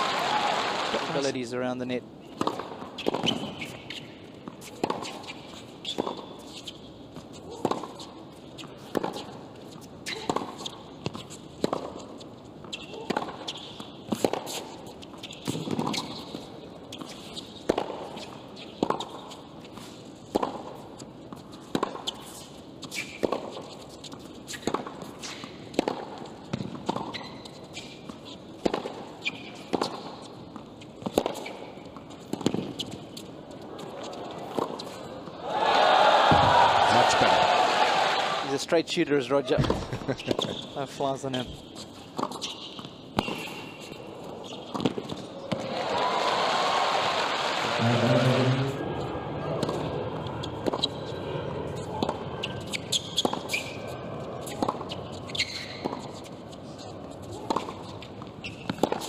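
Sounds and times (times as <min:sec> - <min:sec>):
sneaker squeaks: 0:02.2 - 0:20.0, 0:21.0 - 0:25.8, 0:26.5 - 0:35.2, 0:39.4 - 0:45.6, 0:50.3 - 0:59.0
tennis ball struck: 0:28.6 - 0:29.0, 0:31.0 - 0:31.6, 0:32.3 - 0:32.7, 0:36.3 - 0:37.1, 0:44.7 - 0:45.7, 0:58.6 - 0:59.0.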